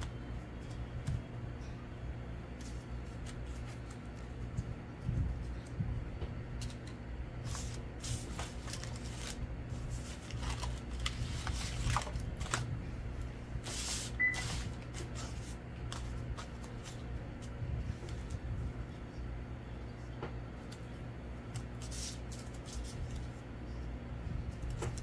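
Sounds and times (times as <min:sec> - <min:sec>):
paper rustling: 0:02.5 - 0:05.8, 0:06.6 - 0:12.7, 0:13.6 - 0:18.5, 0:21.5 - 0:23.3.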